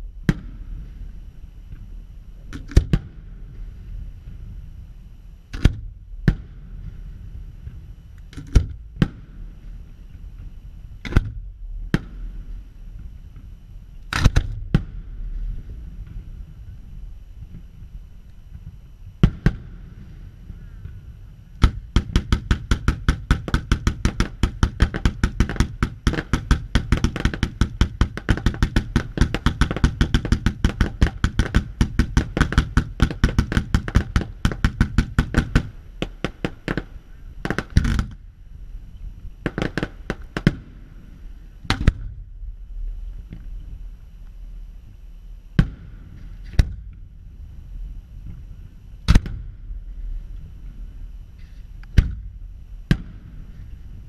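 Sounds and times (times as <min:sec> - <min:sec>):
fireworks bangs: 0:18.5 - 0:21.0, 0:21.6 - 0:38.2, 0:39.4 - 0:42.2.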